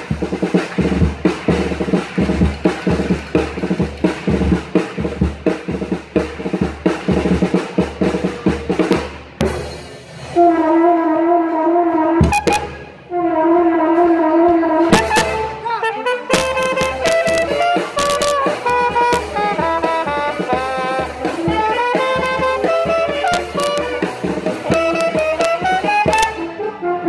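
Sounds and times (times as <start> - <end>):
drum kit beat: 0.0 - 10.3, 12.2 - 13.1, 14.9 - 26.6
trumpet long notes: 10.2 - 27.0.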